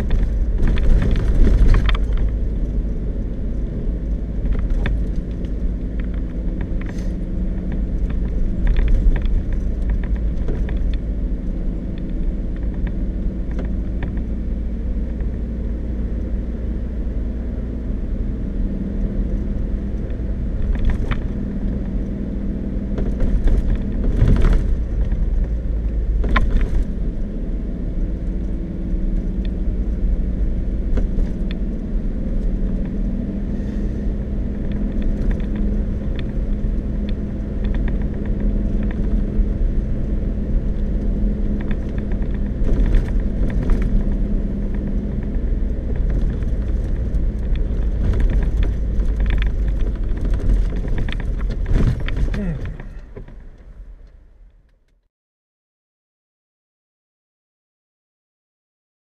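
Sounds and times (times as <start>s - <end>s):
engine hum: 0.0s - 55.0s
tyre rumble: 41.4s - 53.8s
knocks and rattles: 45.2s - 53.6s.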